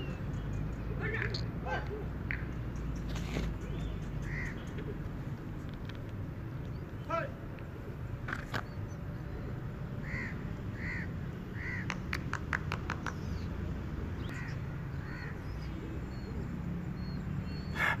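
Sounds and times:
crows cawing: 0:04.2 - 0:04.8, 0:10.0 - 0:12.0, 0:14.3 - 0:15.5
quick run of clicks: 0:11.8 - 0:13.4.

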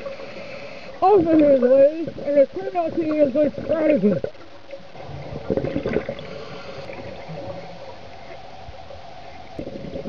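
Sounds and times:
faint hum: 0:00.0 - 0:10.0
bubbles gurgling underwater: 0:02.9 - 0:08.8, 0:09.5 - 0:10.0.

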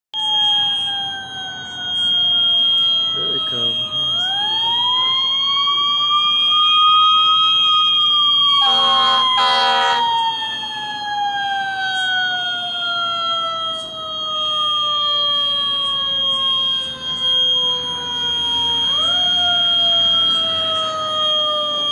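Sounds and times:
fire alarm high tone: 0:00.1 - 0:21.9
fire engine siren winding: 0:00.2 - 0:21.9
horn blasts: 0:08.6 - 0:10.2.

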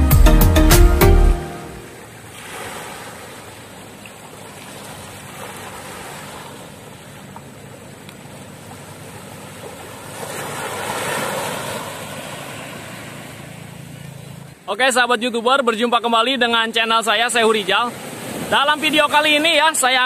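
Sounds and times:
waves washing onto shore: 0:01.8 - 0:14.6, 0:17.1 - 0:20.0.

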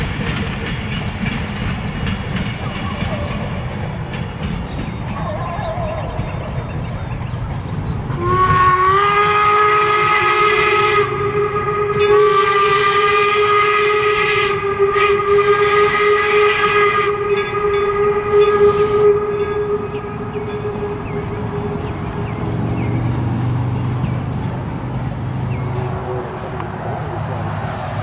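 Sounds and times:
steam locomotive whistle: 0:08.1 - 0:23.0.

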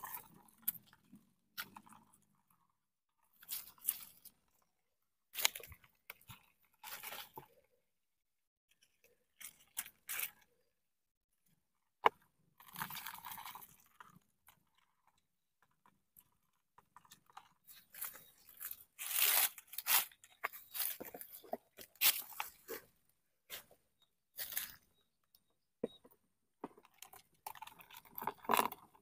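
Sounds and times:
hands digging through dry leaves: 0:18.0 - 0:21.4.

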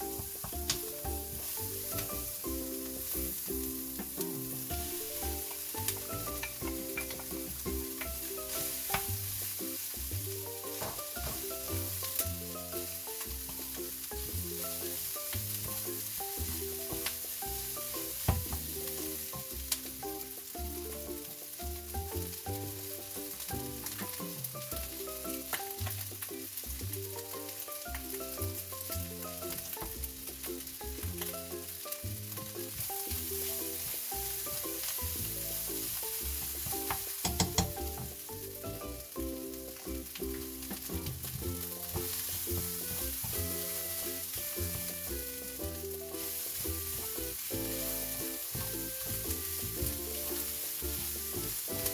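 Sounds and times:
spatula scraping and knocking pan: 0:00.0 - 0:20.4, 0:32.4 - 0:39.3, 0:39.9 - 0:51.9
background music: 0:00.0 - 0:51.9
food sizzling in frying pan: 0:00.0 - 0:51.9.

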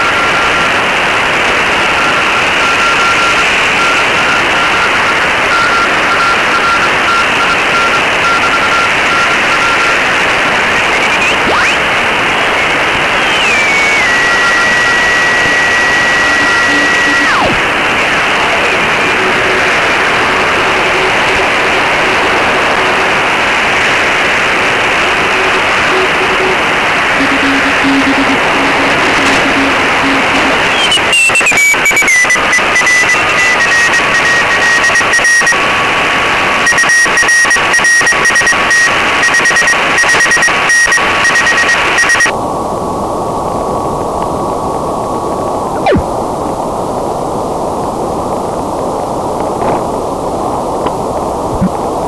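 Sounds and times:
radio band noise hiss: 0:00.0 - 0:52.0
morse code tones: 0:01.8 - 0:11.9, 0:12.6 - 0:35.6, 0:36.6 - 0:42.3
tone gliding down in pitch: 0:13.3 - 0:17.6
steady carrier tone: 0:13.6 - 0:34.6.

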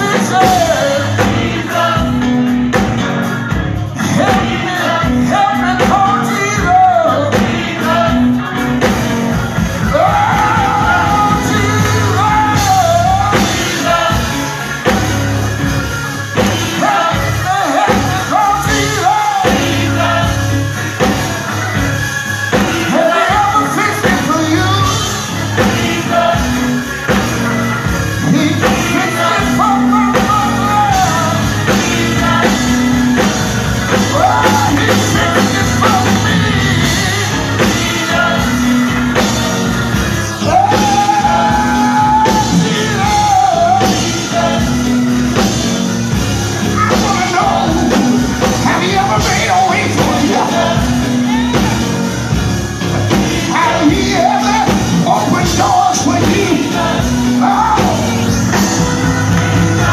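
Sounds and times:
instrumental accompaniment: 0:00.0 - 0:59.9
person singing: 0:53.1 - 0:59.1.

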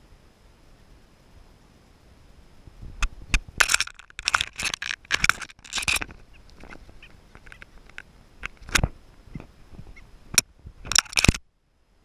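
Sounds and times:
crackling rustling bursts: 0:02.6 - 0:11.4.

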